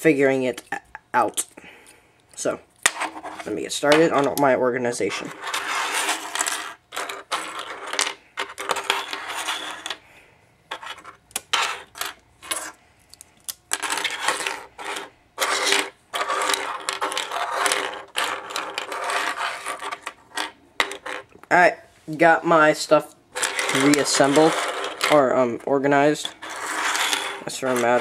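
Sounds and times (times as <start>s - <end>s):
plastic pieces clattering on desk: 5.2s - 10.0s, 13.4s - 21.3s, 23.4s - 25.2s.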